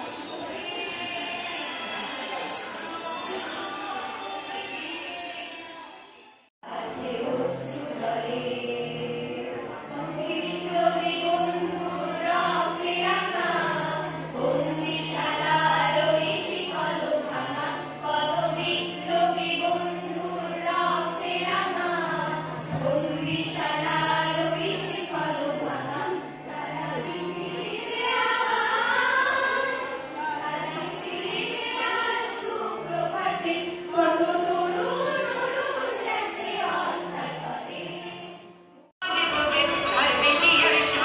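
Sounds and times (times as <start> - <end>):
group singing in unison: 0.0 - 38.6.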